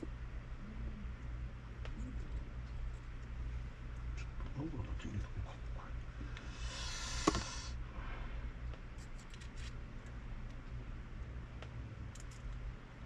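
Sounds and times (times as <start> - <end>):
steady low hum: 0.0 - 13.0
rustling hiss: 6.5 - 7.8
small parts clicking: 12.1 - 12.6.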